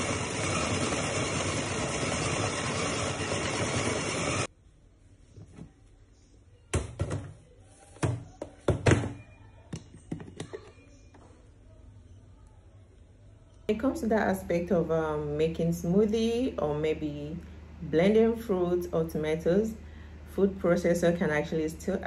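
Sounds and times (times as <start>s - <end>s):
food processor motor running: 0.0s - 4.5s.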